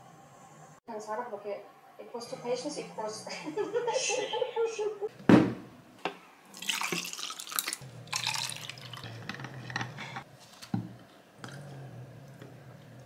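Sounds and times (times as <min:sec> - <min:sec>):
liquid splashing into tumbler: 0:06.5 - 0:09.0
ice and straw clinking on glass: 0:06.6 - 0:10.2.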